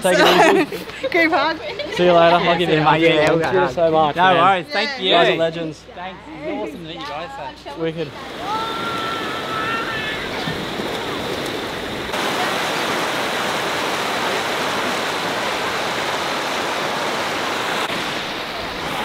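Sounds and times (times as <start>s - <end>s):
water cascading over rock: 8.3s - 19.0s.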